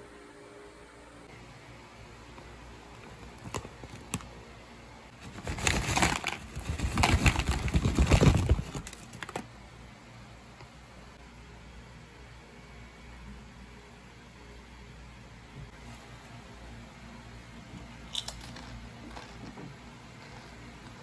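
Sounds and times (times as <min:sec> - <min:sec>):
crinkly bag rustling: 0:05.1 - 0:09.5.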